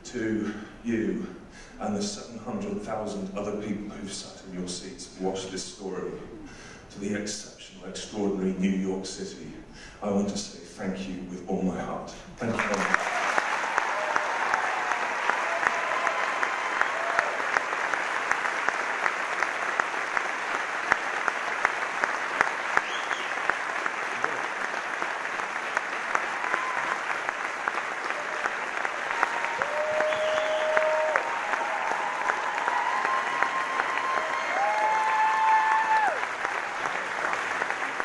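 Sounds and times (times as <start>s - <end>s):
audience applauding: 12.4s - 38.0s.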